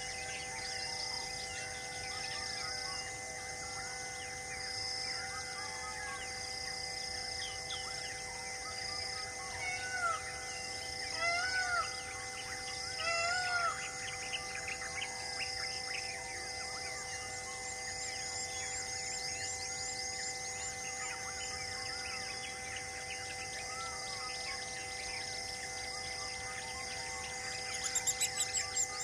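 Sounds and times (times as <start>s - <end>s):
pulsing insect drone: 0.0s - 29.0s
loud arching bird calls: 9.5s - 15.8s.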